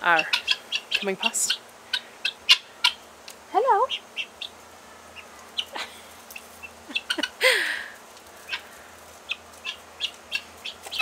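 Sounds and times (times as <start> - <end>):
guinea fowl clicking calls: 0.1 - 4.6, 6.3 - 7.4, 8.2 - 11.0
person laughing breathily: 5.7 - 6.2, 6.9 - 8.0.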